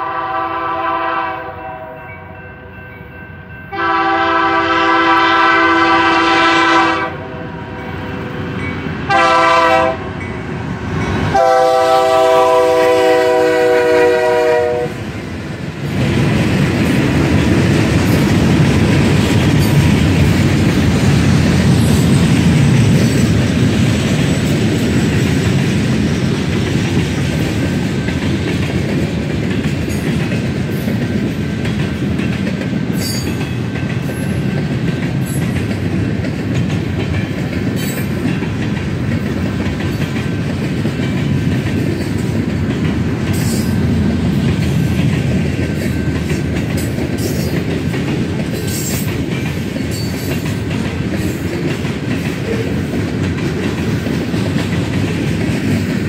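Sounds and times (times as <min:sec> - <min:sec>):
locomotive horn chord: 0:00.0 - 0:02.3, 0:03.7 - 0:07.9, 0:09.1 - 0:10.2, 0:11.3 - 0:15.0.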